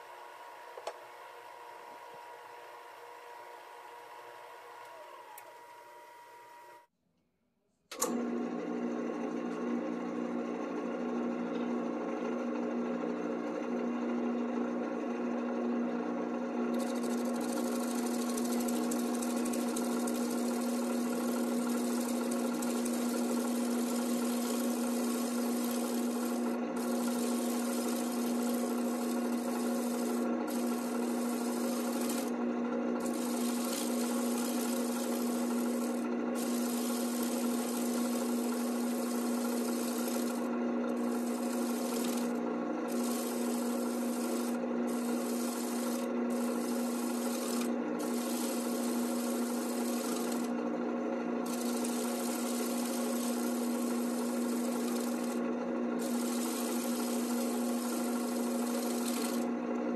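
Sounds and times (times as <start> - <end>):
wood lathe motor humming: 0.0 - 6.9, 8.0 - 59.7
scraper shaving wood: 16.8 - 32.4, 33.0 - 50.6, 51.5 - 55.4, 56.0 - 59.5.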